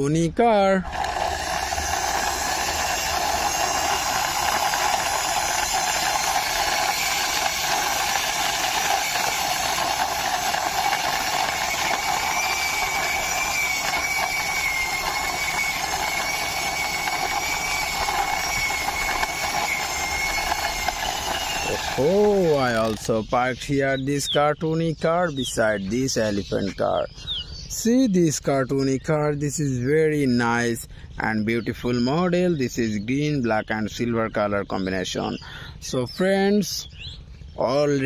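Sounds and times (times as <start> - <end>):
toy car wheels rolling on concrete: 0.8 - 23.3.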